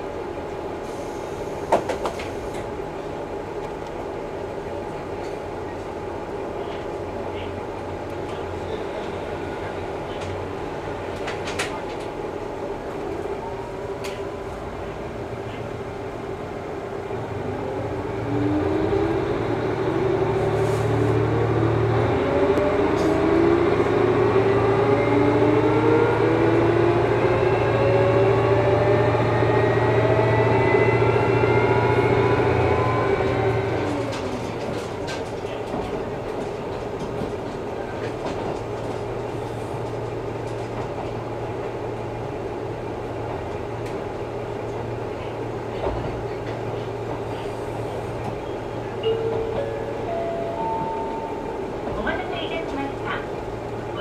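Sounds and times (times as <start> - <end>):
railcar cabin rumble: 0.0 - 54.0
diesel engine drone: 13.4 - 34.8.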